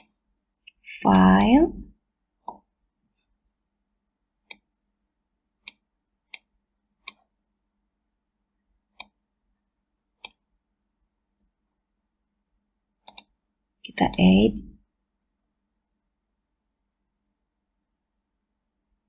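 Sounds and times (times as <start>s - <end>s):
faint steady hum: 0.0s - 19.0s
computer mouse clicking: 4.4s - 4.7s, 5.6s - 7.3s, 8.9s - 9.2s, 10.2s - 10.4s, 13.0s - 13.4s.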